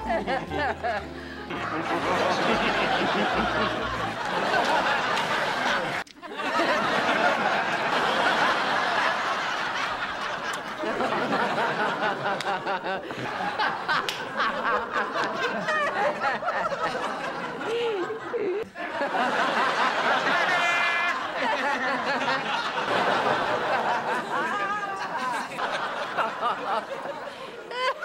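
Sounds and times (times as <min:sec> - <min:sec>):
woman laughing and snickering: 0:14.7 - 0:18.7.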